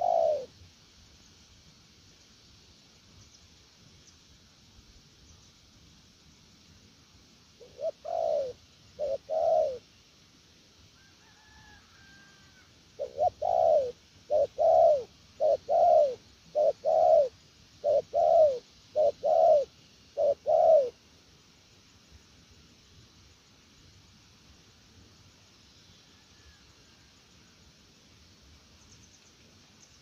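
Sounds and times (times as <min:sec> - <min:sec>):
dove cooing: 0:00.0 - 0:00.5, 0:07.6 - 0:09.8, 0:12.0 - 0:21.0.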